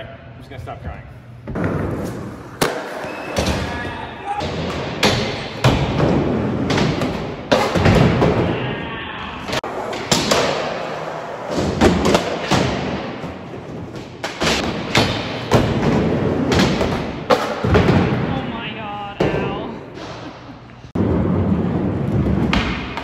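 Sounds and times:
skateboard clacking and thudding: 9.6s - 18.2s
skateboard wheels rolling on concrete: 21.0s - 23.0s.

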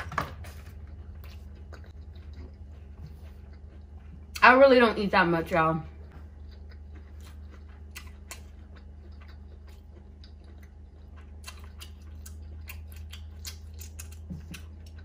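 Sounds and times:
steady low hum: 0.0s - 15.0s
wet chewing clicks: 5.9s - 15.0s.

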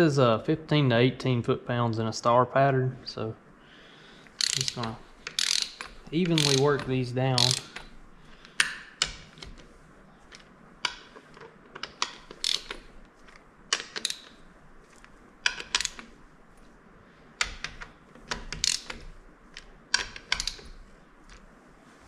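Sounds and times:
socket ratchet clicking: 4.3s - 9.7s, 10.3s - 16.2s, 17.4s - 21.4s.

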